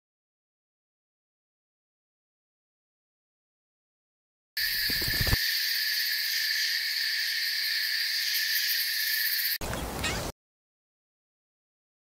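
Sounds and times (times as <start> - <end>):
high-pitched insect drone: 4.6 - 9.6.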